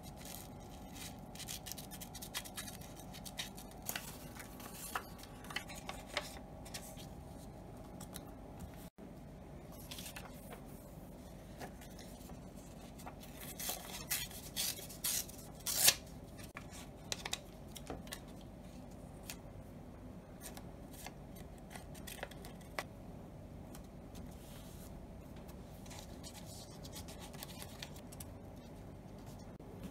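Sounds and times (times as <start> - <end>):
paper rustling: 0.0 - 8.8.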